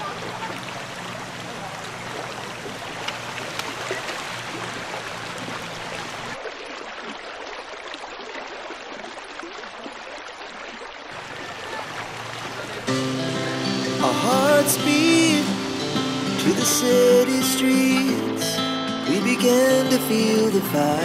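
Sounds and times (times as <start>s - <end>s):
river flowing over stones: 0.0s - 21.0s.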